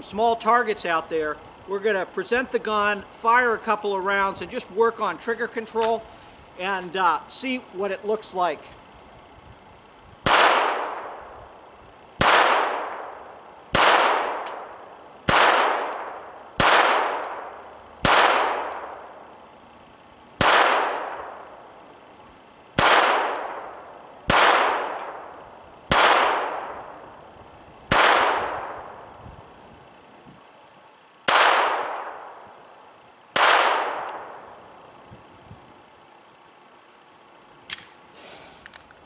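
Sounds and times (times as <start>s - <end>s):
pistol shots with echo: 10.2s - 11.2s, 12.2s - 14.7s, 15.3s - 19.1s, 20.4s - 21.4s, 22.8s - 25.3s, 25.9s - 27.0s, 27.9s - 29.0s, 31.3s - 32.4s, 33.4s - 34.5s.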